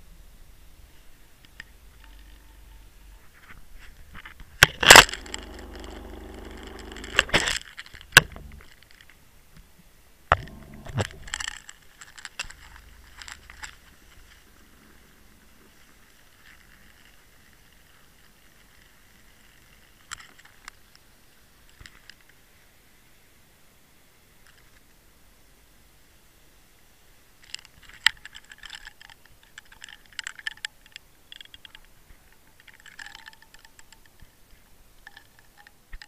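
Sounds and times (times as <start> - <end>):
faint clicks: 1.4 - 9.7, 27.4 - 36.0.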